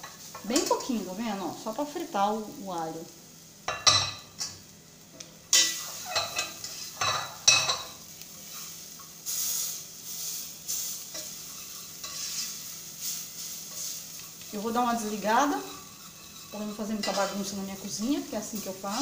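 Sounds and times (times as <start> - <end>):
garlic sizzling in oil: 0.0 - 19.0
metal spoon scraping pot: 5.6 - 7.9, 11.1 - 12.6, 15.4 - 17.6.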